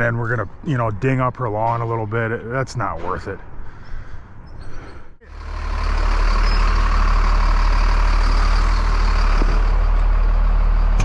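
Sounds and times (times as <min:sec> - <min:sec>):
large vehicle engine idling: 0:05.2 - 0:11.0.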